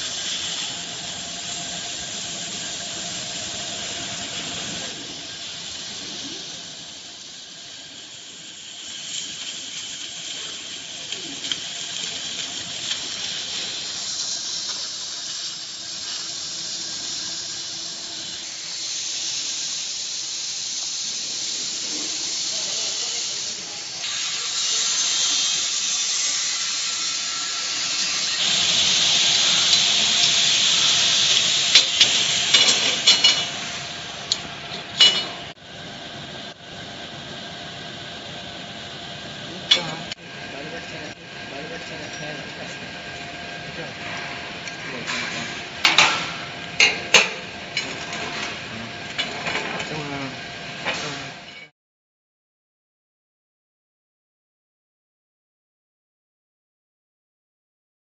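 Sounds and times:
laser cutter hissing: 0.0 - 51.5.

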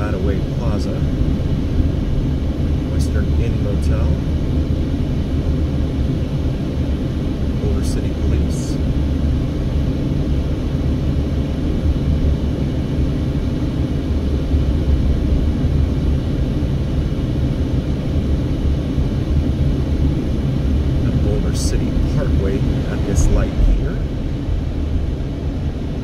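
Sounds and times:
car cabin road and engine rumble: 0.0 - 12.8, 19.6 - 26.0.

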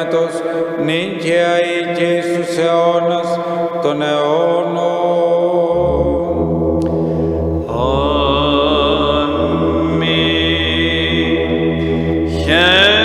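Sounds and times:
man chanting hymn: 0.0 - 6.4, 7.7 - 13.0
low drone: 3.3 - 13.0.

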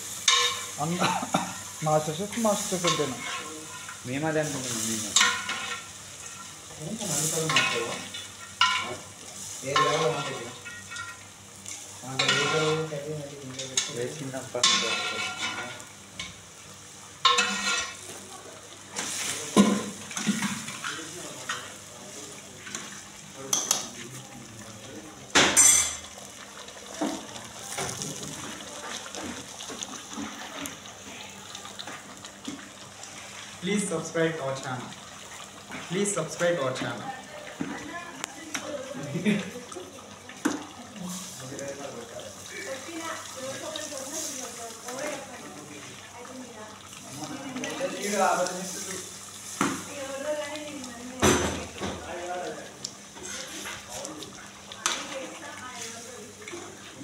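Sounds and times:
food sizzling in a pot: 0.0 - 57.0
metal spoon scraping a pot: 14.6 - 15.8
people talking: 36.0 - 49.1, 53.9 - 57.0.

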